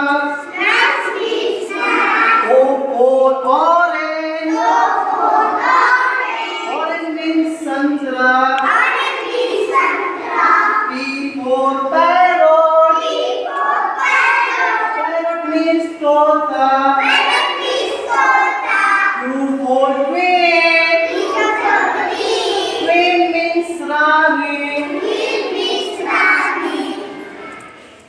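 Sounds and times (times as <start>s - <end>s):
children singing in chorus: 0.0s - 2.8s, 4.2s - 6.8s, 8.4s - 15.2s, 16.5s - 27.9s.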